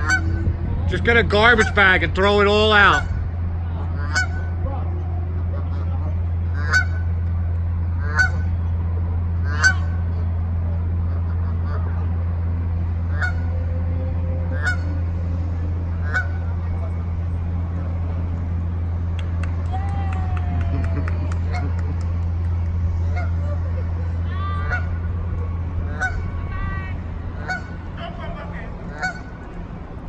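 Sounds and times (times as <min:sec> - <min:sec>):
goose honking: 0:00.0 - 0:04.6, 0:05.4 - 0:07.2, 0:07.9 - 0:08.6, 0:09.4 - 0:10.1, 0:10.9 - 0:12.2, 0:13.0 - 0:17.2, 0:23.0 - 0:23.6, 0:24.2 - 0:25.2, 0:25.8 - 0:29.6
steady low hum: 0:00.0 - 0:30.0.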